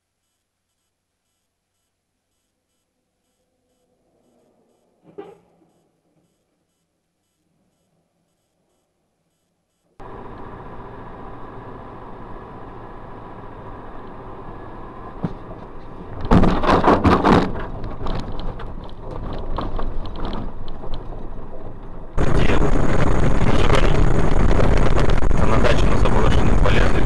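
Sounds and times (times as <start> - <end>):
loud steady vehicle noise: 10.0 - 18.2, 21.7 - 27.0
car engine and road noise: 10.0 - 27.0
loud crash and clatter: 16.2 - 21.6.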